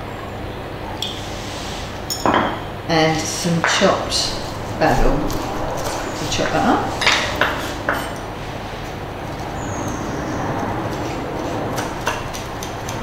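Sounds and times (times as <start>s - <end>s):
steady rushing background noise: 0.7s - 13.0s.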